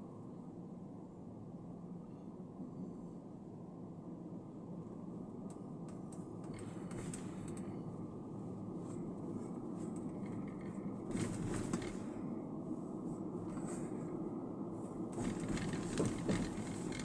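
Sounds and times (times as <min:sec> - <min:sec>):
car road and engine noise: 0:00.0 - 0:17.0
faint clicks and rattles: 0:05.5 - 0:07.8, 0:09.8 - 0:12.1, 0:15.2 - 0:17.0.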